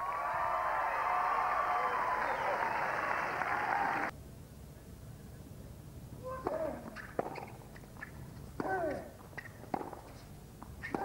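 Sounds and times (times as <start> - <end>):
racket hitting tennis ball: 6.4 - 11.0.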